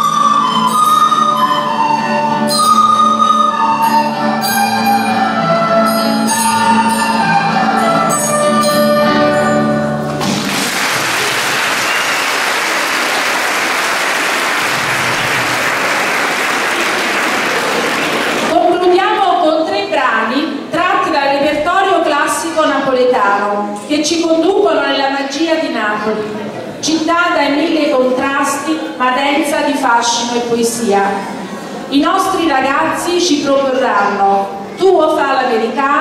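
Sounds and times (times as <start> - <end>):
recorder orchestra with guitars: 0.0 - 10.4
audience applause: 10.2 - 18.6.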